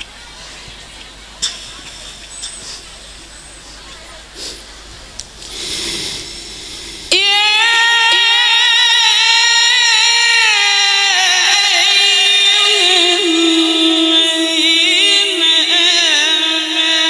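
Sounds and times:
man chanting into microphone: 7.1 - 17.0.

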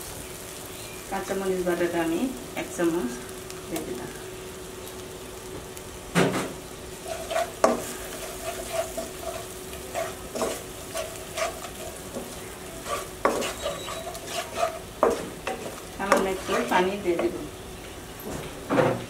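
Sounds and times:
food sizzling in a pan: 0.0 - 18.7
spatula scraping a pan: 6.3 - 17.4.

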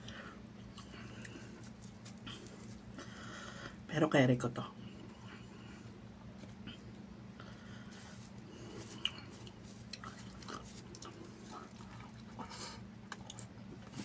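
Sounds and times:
chewing and lip smacks: 0.0 - 3.0, 8.4 - 14.0
steady low hum: 0.0 - 14.0.

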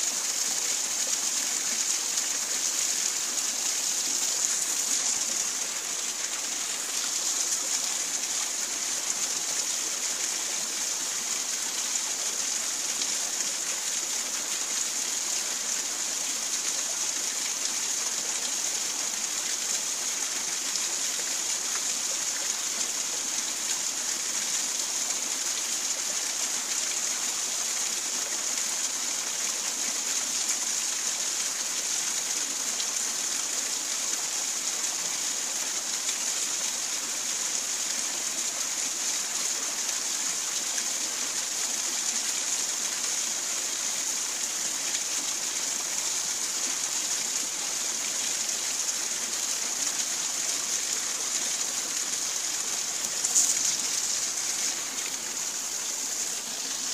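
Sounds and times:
river flowing over rocks: 0.0 - 56.9.

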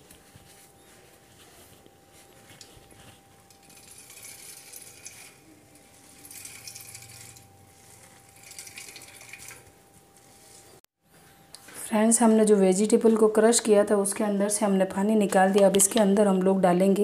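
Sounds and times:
water trickling into steel bowl: 3.4 - 10.8.

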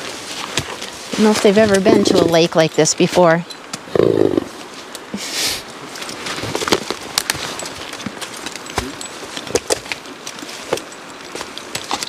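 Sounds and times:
hooves crunching dry leaves: 0.0 - 2.6, 5.8 - 12.0
brief hiss: 5.1 - 5.6.

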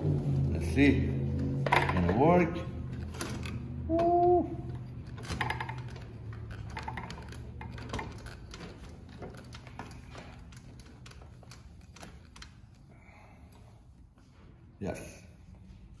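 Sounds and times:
sewing machine clicks and knocks: 5.0 - 12.8.

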